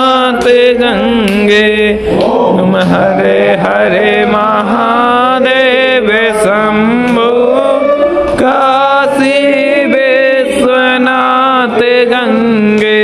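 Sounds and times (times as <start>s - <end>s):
person chanting held notes: 0.0s - 13.0s
sustained low drone: 0.8s - 10.0s.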